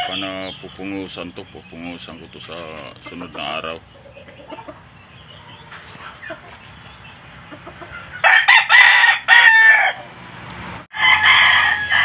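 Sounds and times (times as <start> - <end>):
rooster crowing: 8.2 - 10.1, 10.9 - 12.0.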